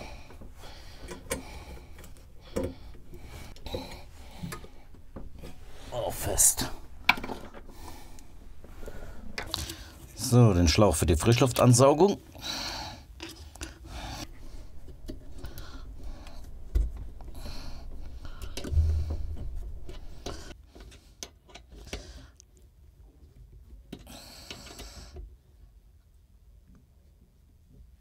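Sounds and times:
dull thumps: 14.3s - 20.5s.

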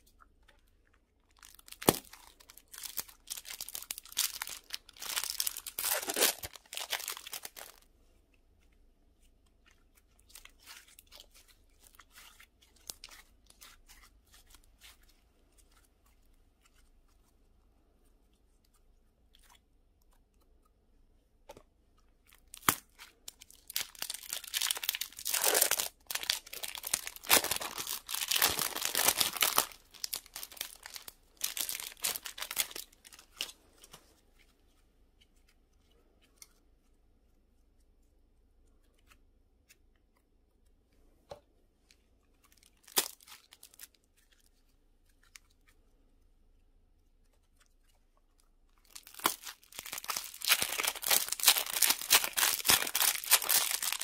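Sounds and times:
hands squeezing sticky slime: 8.4s - 17.4s, 18.2s - 33.6s, 47.0s - 54.0s.

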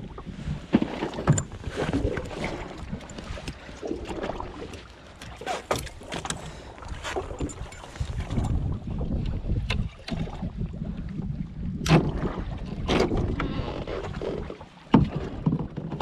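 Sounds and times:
water lapping against hull: 0.0s - 16.0s
wind on microphone: 6.9s - 16.0s.

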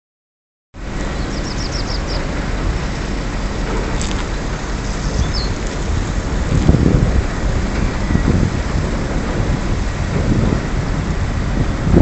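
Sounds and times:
outdoor rumble and hiss: 0.8s - 12.0s
small bird chirping: 1.2s - 2.2s, 4.8s - 5.6s.

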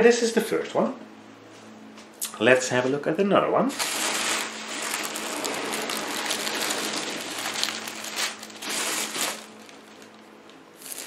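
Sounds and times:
tissue paper crinkling: 3.7s - 11.0s.

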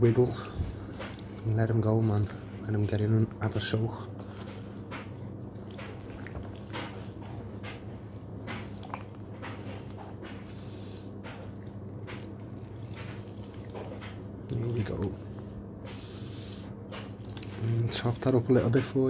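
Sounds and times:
steady low hum: 0.0s - 19.0s
water trickling and dripping: 5.5s - 7.5s, 11.3s - 14.2s
small splashes in water: 11.3s - 14.2s.

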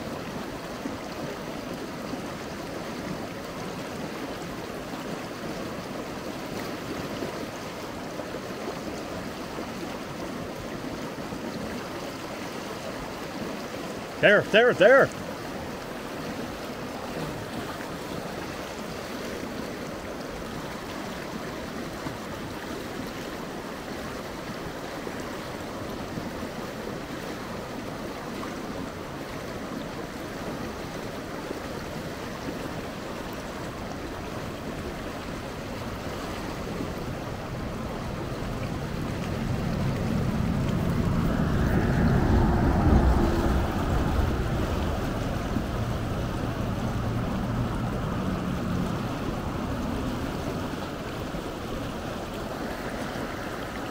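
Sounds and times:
river water flowing: 0.0s - 53.9s
wind buffeting microphone: 34.5s - 53.9s.

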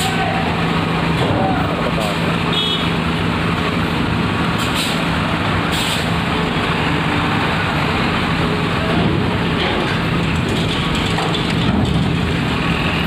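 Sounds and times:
bus diesel engine running: 0.0s - 13.0s
short hisses of air: 5.7s - 6.1s.

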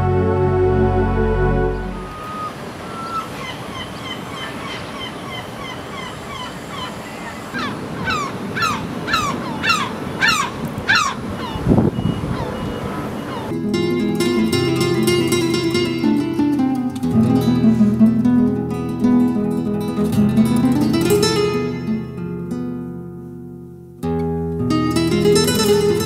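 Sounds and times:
open-air hiss: 1.6s - 11.9s, 12.8s - 26.0s
gulls calling: 1.6s - 22.0s.

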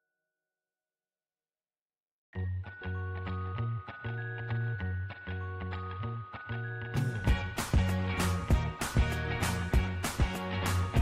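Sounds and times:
background music with steady beat: 2.6s - 11.0s.

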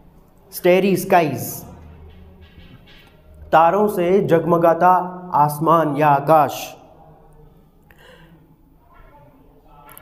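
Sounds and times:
soft breath: 7.6s - 8.8s.

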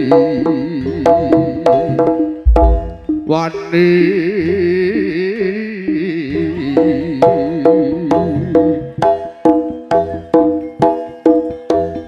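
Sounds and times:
heavy low drum stroke: 2.5s - 3.4s
steady beat: 2.5s - 3.4s.

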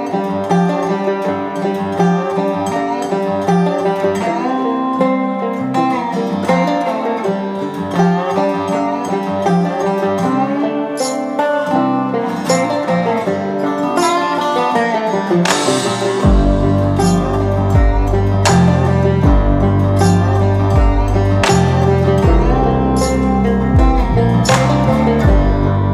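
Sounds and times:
instrumental music with plucked strings: 0.0s - 25.9s
deep bass: 15.7s - 25.9s.

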